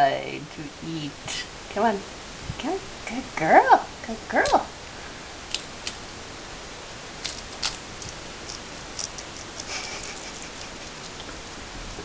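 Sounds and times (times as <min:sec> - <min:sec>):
steady hiss: 0:00.1 - 0:12.0
guinea pig chewing lettuce: 0:07.2 - 0:11.4.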